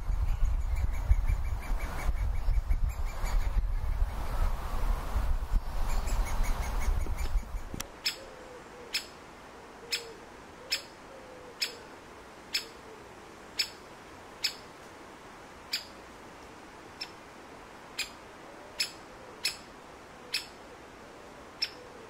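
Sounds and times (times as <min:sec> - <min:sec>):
woodpecker sharp call: 0:08.0 - 0:09.2, 0:09.9 - 0:10.9, 0:11.6 - 0:11.8, 0:12.5 - 0:12.8, 0:13.6 - 0:13.8, 0:14.4 - 0:14.6, 0:15.7 - 0:15.9, 0:18.8 - 0:19.7, 0:20.3 - 0:20.6, 0:21.6 - 0:21.9.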